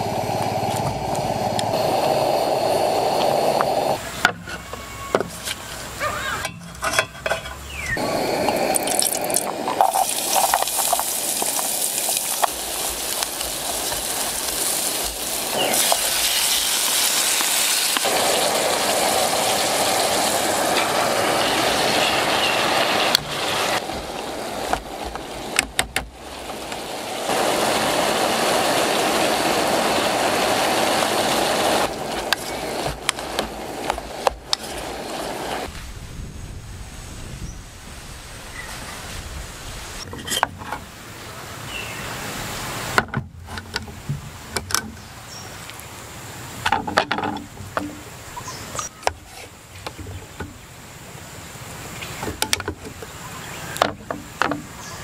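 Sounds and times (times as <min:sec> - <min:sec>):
river water rushing: 0:08.0 - 0:35.7
camp gear clicks and knocks: 0:46.6 - 0:48.1.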